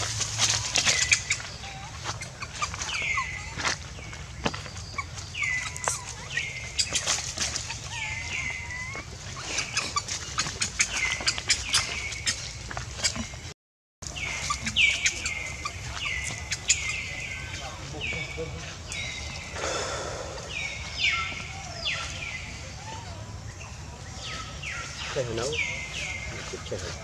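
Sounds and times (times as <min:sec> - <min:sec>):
footsteps in leaf litter: 0:00.0 - 0:04.9.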